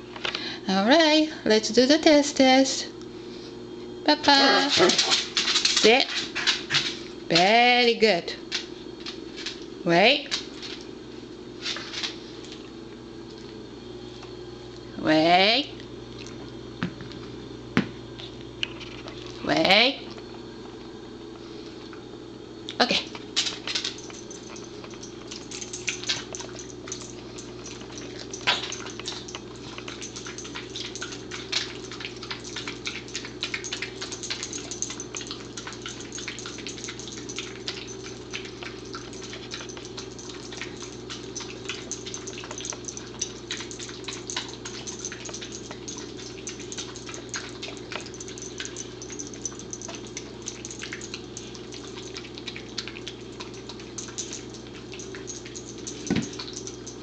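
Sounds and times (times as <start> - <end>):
dog licking and smacking: 23.4 - 57.0.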